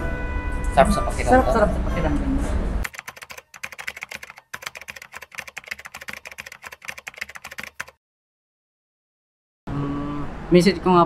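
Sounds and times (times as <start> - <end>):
keyboard typing clicks: 2.8 - 8.0.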